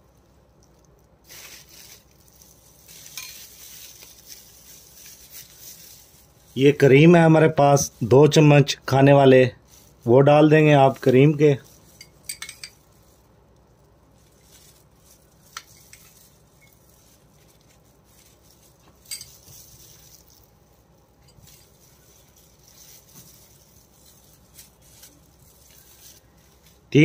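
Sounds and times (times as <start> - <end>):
metal spoon clinking on glass bowl: 12.0 - 12.8, 19.0 - 19.6.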